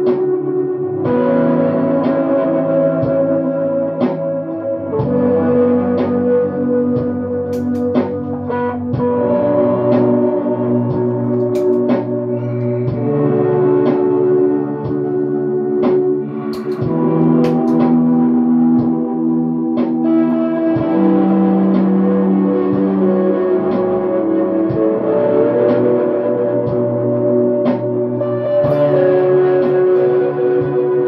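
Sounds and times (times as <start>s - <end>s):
clean electric guitar with reverb: 0.0s - 31.0s.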